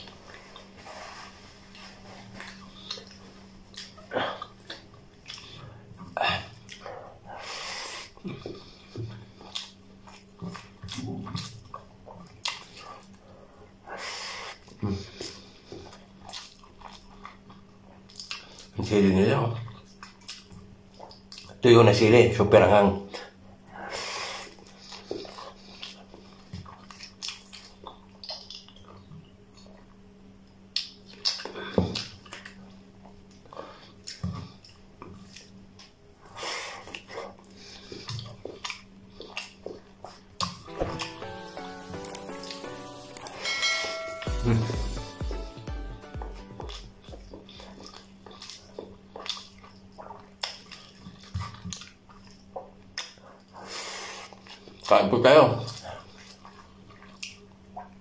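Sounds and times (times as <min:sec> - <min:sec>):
person chewing food: 0:00.0 - 0:18.8, 0:19.6 - 0:21.6, 0:23.2 - 0:43.4, 0:44.2 - 0:54.9, 0:55.6 - 0:58.0
steady low hum: 0:22.4 - 0:54.9
lip smacks: 0:30.7 - 0:32.6, 0:46.7 - 0:54.9
wet squishing of fingers in food: 0:46.4 - 0:53.6.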